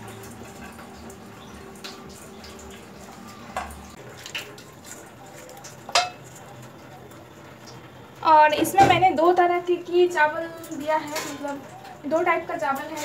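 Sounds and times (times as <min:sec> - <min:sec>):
colander clinking against pan: 0:05.9 - 0:06.2.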